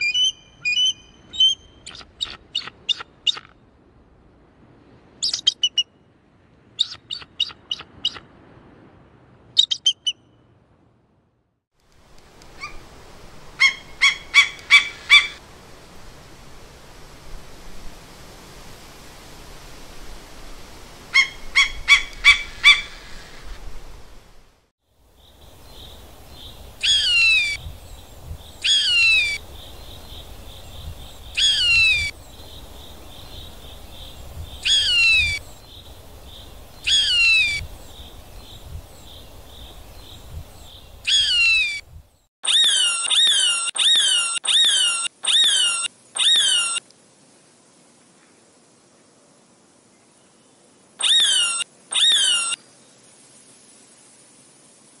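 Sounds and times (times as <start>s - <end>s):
eagle short calls: 13.6s - 15.4s.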